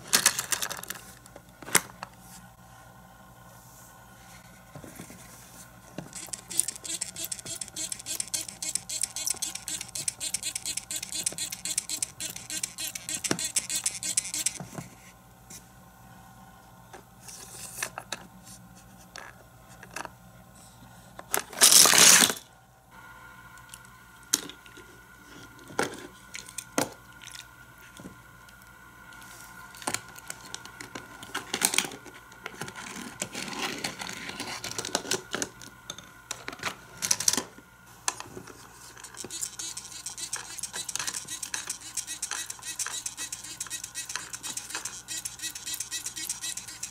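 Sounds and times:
toy water squirter hissing: 6.2 - 14.6, 39.0 - 46.9.

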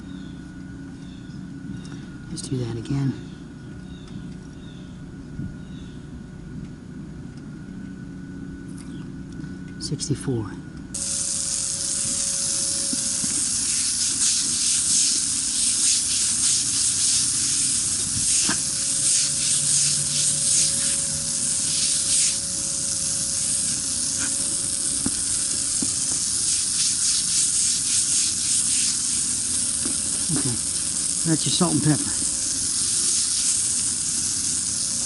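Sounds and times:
steady machine hum: 0.0 - 35.0
pressure washer spraying concrete: 11.0 - 35.0.

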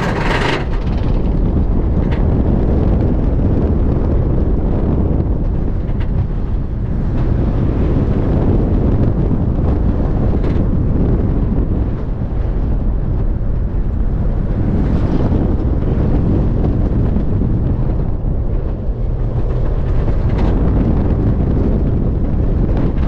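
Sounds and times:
lift hill noise: 0.0 - 3.9
roller coaster train rumble: 0.0 - 23.0
wind buffeting camera: 0.0 - 23.0.

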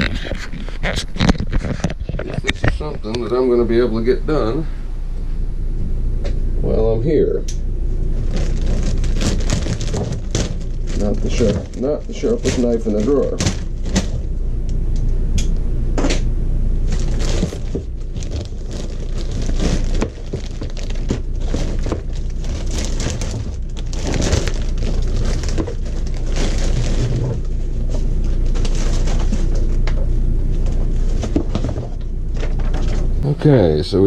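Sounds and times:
steady low hum: 0.0 - 34.0
plastic bag crinkling and rustling: 8.1 - 14.3, 16.8 - 30.0
plastic cover knocking: 8.3 - 14.2, 16.9 - 27.5.

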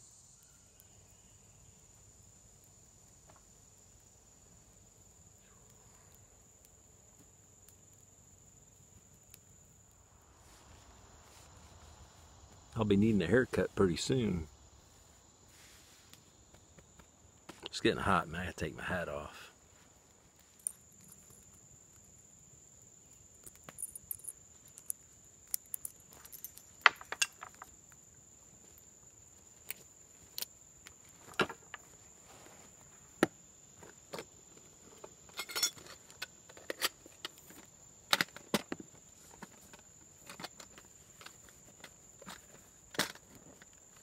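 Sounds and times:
high insect drone: 0.0 - 44.0.

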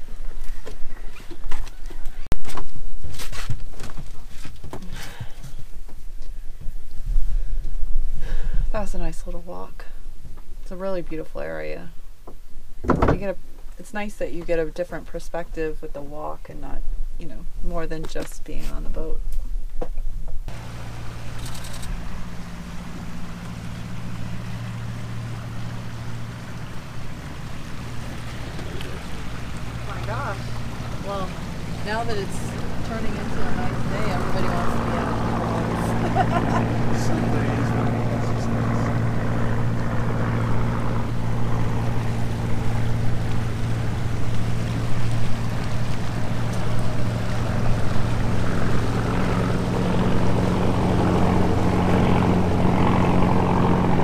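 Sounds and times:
wind: 0.0 - 54.0
electric motor hum: 20.5 - 54.0
water rushing along hull: 20.5 - 54.0.

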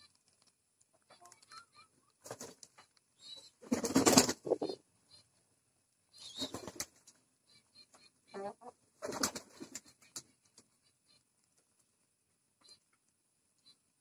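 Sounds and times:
wings flapping: 2.2 - 4.8, 6.2 - 7.2, 9.0 - 10.7.

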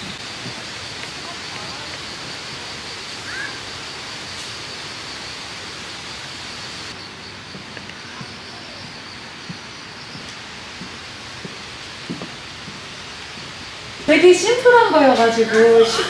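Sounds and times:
outdoor background hiss: 0.0 - 16.0.

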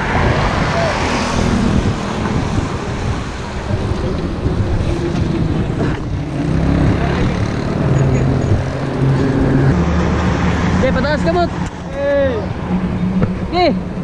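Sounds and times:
wind on microphone: 0.0 - 9.8
heavy vehicle engine hum: 0.0 - 14.0
roadside traffic: 0.0 - 14.0.

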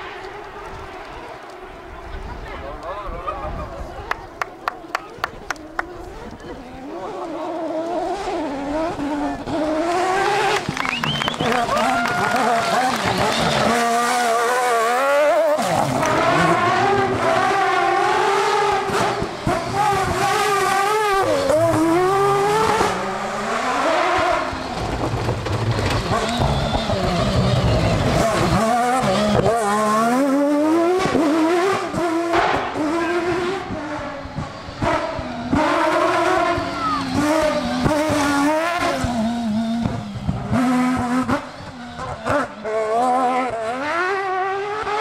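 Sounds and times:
rally car engine at high revs: 4.2 - 45.0.

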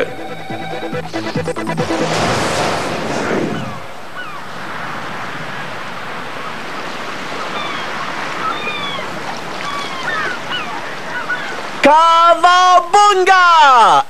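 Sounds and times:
ocean water washing: 0.2 - 11.9
dolphin whistles: 7.5 - 11.6.

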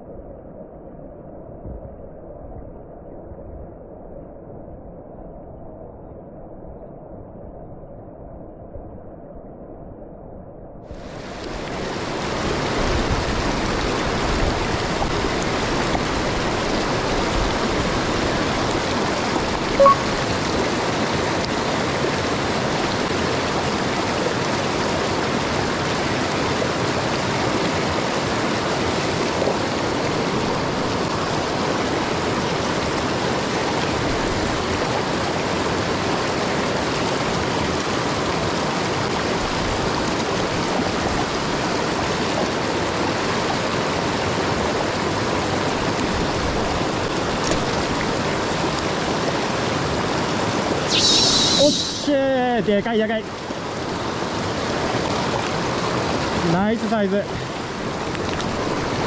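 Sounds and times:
mountain stream rushing: 11.0 - 59.0
short sharp blip: 19.8 - 20.1, 50.9 - 52.1.

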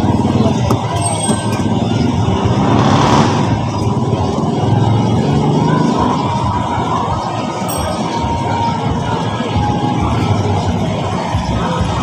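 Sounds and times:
vehicle passing: 0.0 - 7.6
road traffic noise: 0.0 - 12.0.

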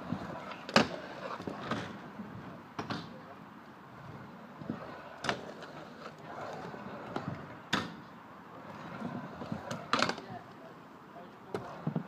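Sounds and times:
scooter wheels rolling on ramps: 0.0 - 3.1, 4.0 - 10.3.

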